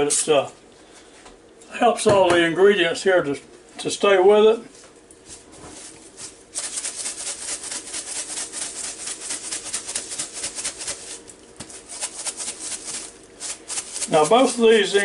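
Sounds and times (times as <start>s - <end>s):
spice shaker rattling: 6.5s - 15.0s.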